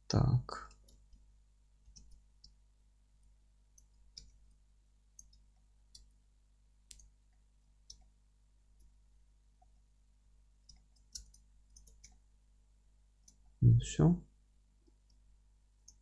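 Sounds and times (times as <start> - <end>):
mouse and keyboard clicks: 10.7 - 12.2.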